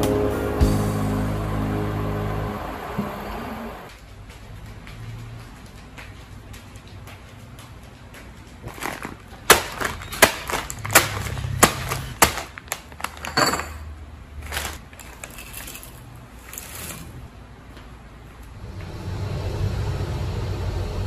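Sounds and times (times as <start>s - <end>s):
plastic bag crinkling: 8.6s - 13.5s, 14.4s - 17.2s
pork rinds crunching: 8.7s - 13.2s.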